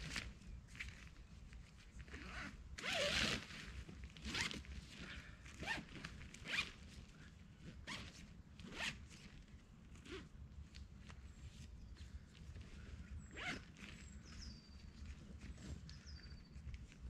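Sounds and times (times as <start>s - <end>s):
zipper pulled: 2.0s - 4.7s, 5.5s - 6.8s, 7.8s - 9.2s, 9.9s - 10.3s, 13.3s - 13.9s.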